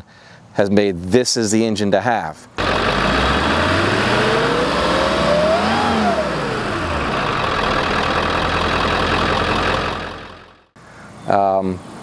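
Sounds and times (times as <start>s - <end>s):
diesel van engine revving: 2.6s - 10.8s.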